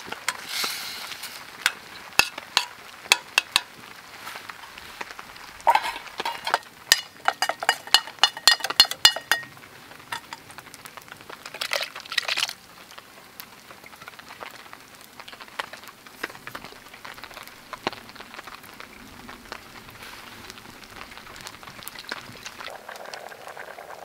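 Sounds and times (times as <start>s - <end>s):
rain falling: 0.0s - 24.0s.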